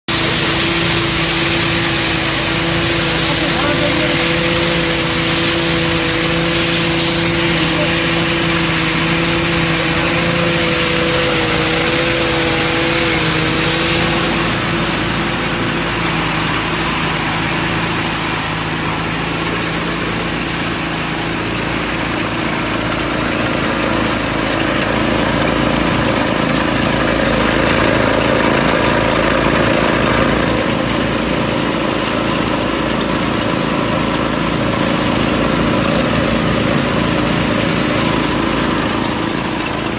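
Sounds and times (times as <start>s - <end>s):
rice thresher running: 0.0s - 39.9s
rushing hiss of stalks fed through: 0.1s - 31.0s.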